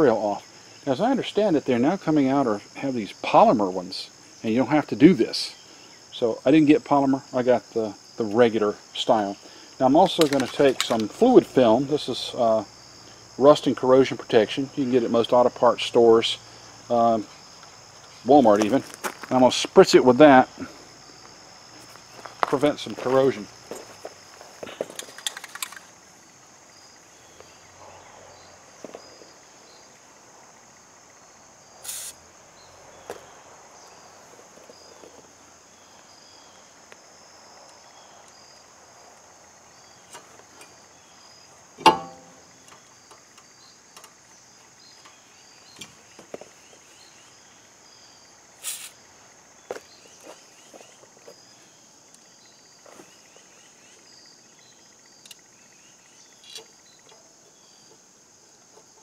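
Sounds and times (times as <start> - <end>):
insect chorus: 0.0 - 59.0
handling clicks: 10.1 - 11.2, 24.9 - 25.9
aerosol can spraying: 31.8 - 32.2
sharp knock: 41.8 - 42.5.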